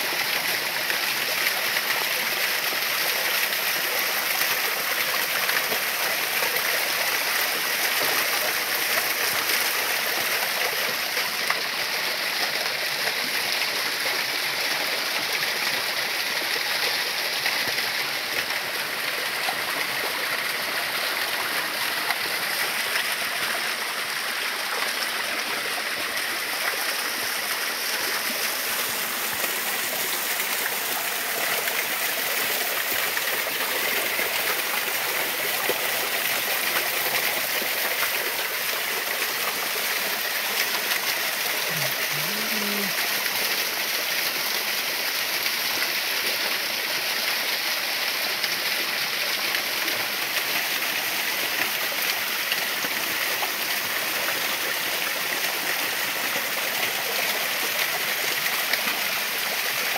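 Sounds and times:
waterfall splashing: 12.6s - 59.9s.

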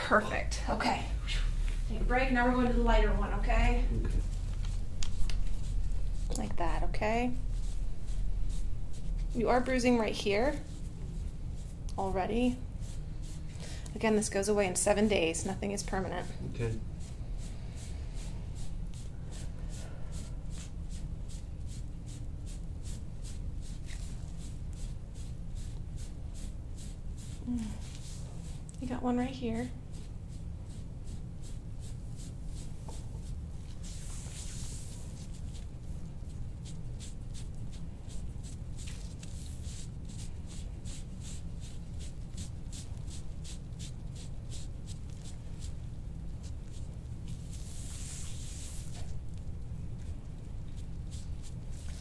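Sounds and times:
steady low hum: 0.0s - 52.0s
tool scraping over skin: 2.6s - 28.7s.

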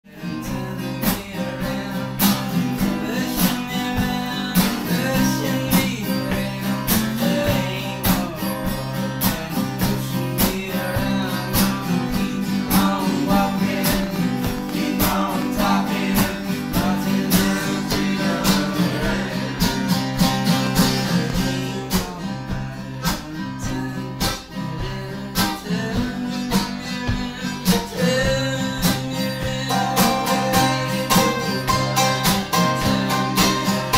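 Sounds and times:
guitar strumming: 0.1s - 33.9s
mandolin playing: 29.6s - 33.9s.

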